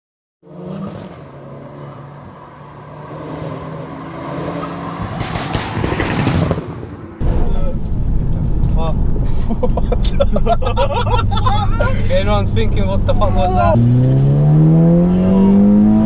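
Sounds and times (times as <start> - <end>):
low rumble: 7.1 - 15.1.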